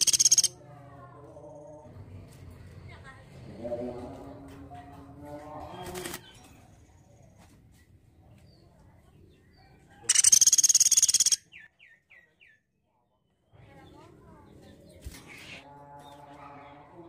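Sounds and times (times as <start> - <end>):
woodpecker rattling trill: 0.0 - 0.5, 10.1 - 11.5.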